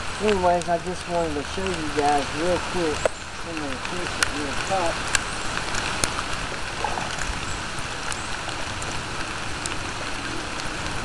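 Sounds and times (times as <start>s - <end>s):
heavy rain on pond water: 0.0s - 11.0s
single raindrop ticks: 0.2s - 6.4s.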